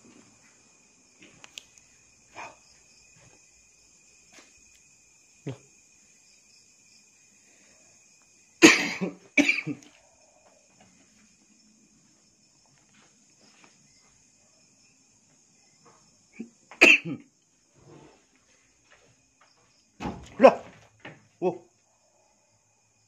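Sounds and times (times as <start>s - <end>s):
high-pitched insect chorus: 0.0s - 23.0s
person coughing: 8.6s - 9.9s, 16.4s - 17.3s.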